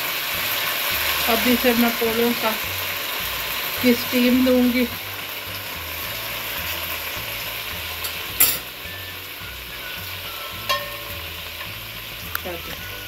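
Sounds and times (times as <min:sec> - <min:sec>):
chicken sizzling in a pot: 0:00.0 - 0:13.0
sharp clink: 0:10.7 - 0:11.1.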